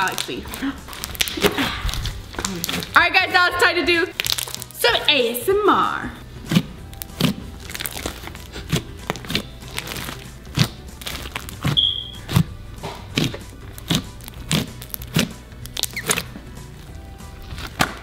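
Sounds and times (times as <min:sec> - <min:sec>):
sticky slime popping: 0:00.0 - 0:03.0, 0:04.1 - 0:04.8, 0:06.4 - 0:16.3.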